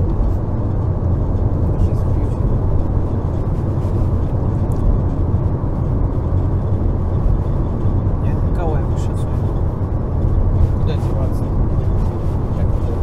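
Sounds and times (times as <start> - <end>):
low engine drone: 0.0 - 13.0
road and tyre rumble: 0.0 - 13.0.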